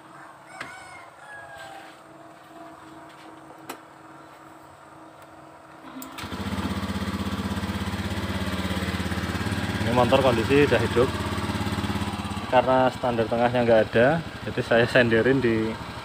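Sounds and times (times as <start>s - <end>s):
scooter engine idling: 6.2s - 16.0s.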